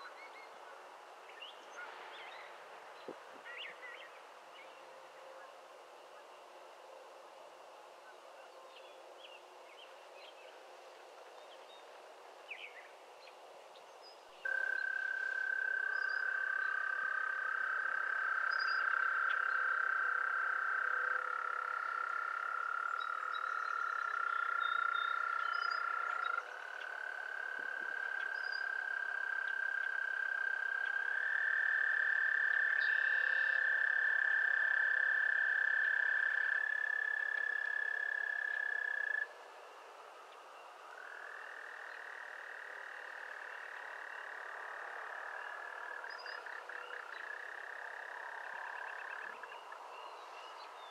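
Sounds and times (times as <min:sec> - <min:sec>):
frogs trilling: 0:14.4 - 0:50.9.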